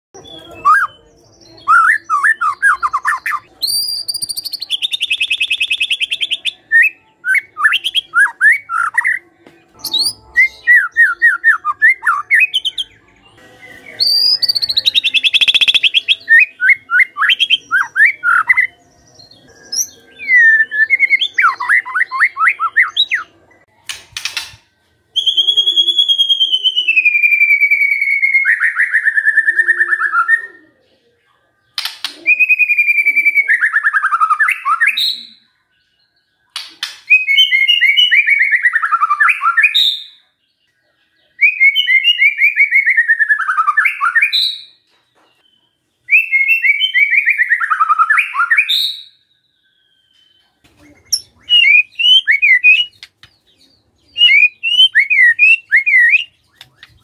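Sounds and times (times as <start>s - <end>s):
bird whistled notes: 51.1s - 53.0s, 54.1s - 57.0s.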